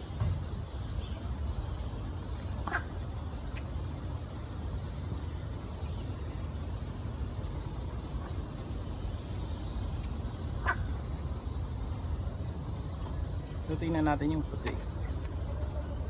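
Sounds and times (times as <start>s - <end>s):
frog croak: 2.5s - 3.3s, 10.4s - 11.7s.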